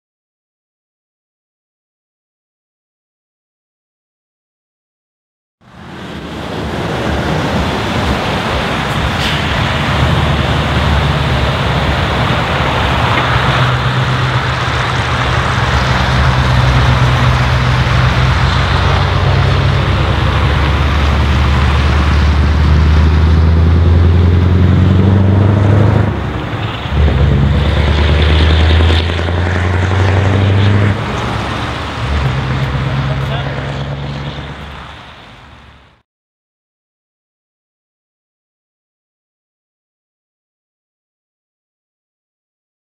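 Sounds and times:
diesel truck driving by: 5.7 - 36.0.

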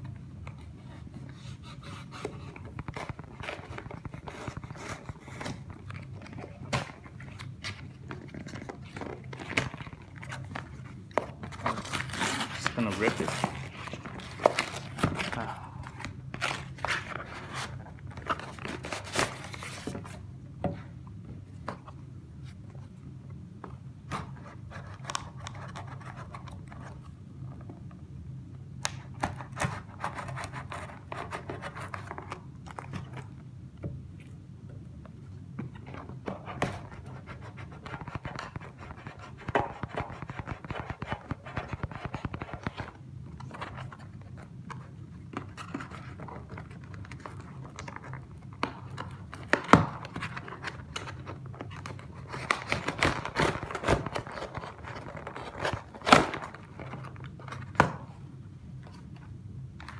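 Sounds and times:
plastic mailer rustling: 2.7 - 20.1.

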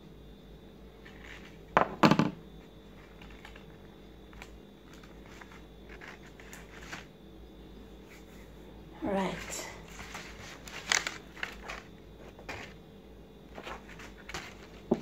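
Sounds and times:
paper rustling: 3.0 - 7.1, 9.4 - 12.8, 13.5 - 15.0
knocks and crinkling: 9.9 - 12.8, 13.5 - 15.0.

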